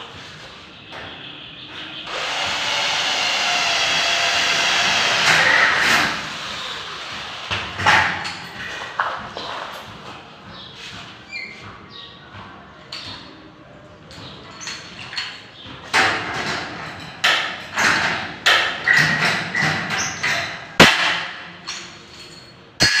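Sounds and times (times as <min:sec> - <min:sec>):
metallic snaps and clanks: 0:14.1 - 0:23.0.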